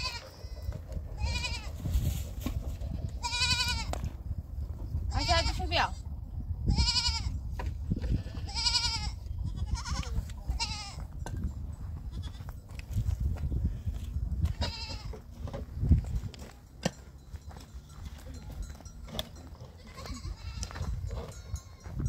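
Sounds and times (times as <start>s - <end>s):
goats bleating: 0.0s - 1.8s, 3.0s - 3.9s, 6.7s - 7.3s, 8.1s - 11.0s, 14.5s - 15.3s, 19.6s - 21.8s.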